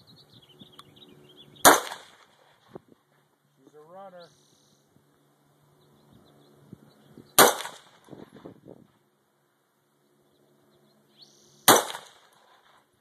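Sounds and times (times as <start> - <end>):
rifle shots: 1.6 - 2.6, 7.4 - 8.1, 11.7 - 12.8.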